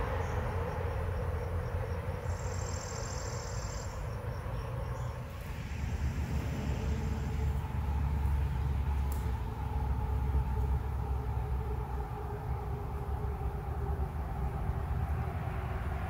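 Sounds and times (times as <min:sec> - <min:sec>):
insect chirping: 0:00.0 - 0:15.3
distant traffic rumble: 0:00.0 - 0:16.0.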